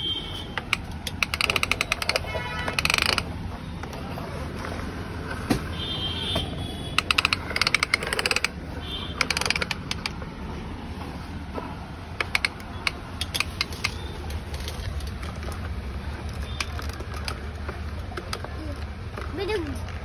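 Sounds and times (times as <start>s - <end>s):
toy tracks rattling on floor: 0.6s - 3.3s, 7.0s - 10.2s, 12.2s - 19.9s.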